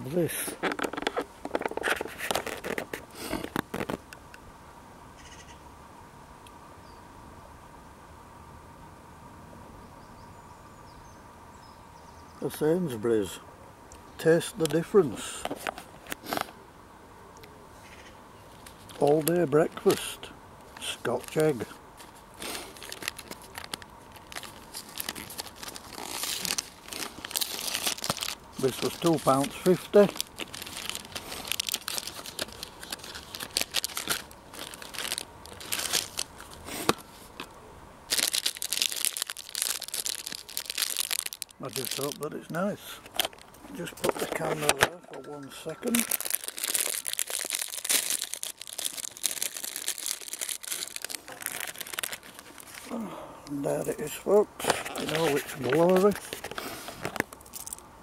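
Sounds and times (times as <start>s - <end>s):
food packaging crinkling: 0.4s - 4.0s, 18.5s - 20.1s, 20.8s - 37.5s, 38.1s - 53.0s, 54.6s - 57.8s.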